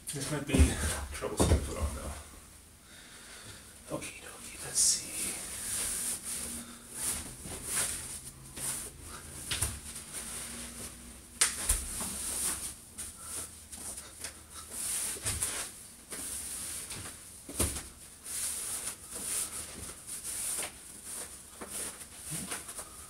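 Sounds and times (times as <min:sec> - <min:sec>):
clothing rustling: 0:04.7 - 0:23.0.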